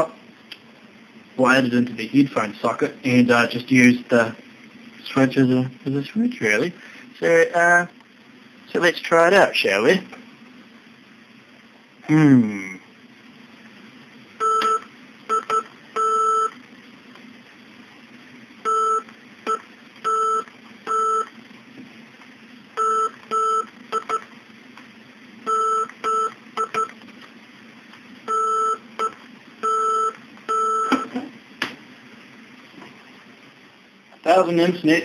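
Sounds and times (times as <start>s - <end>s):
morse code beeps: 14.4s - 16.5s, 22.8s - 24.2s, 25.5s - 26.9s, 28.3s - 31.1s.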